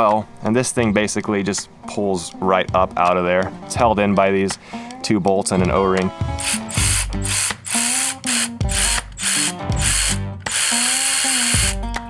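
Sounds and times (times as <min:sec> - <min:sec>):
background music: 0:00.0 - 0:12.0
electric ratchet running: 0:06.4 - 0:11.8.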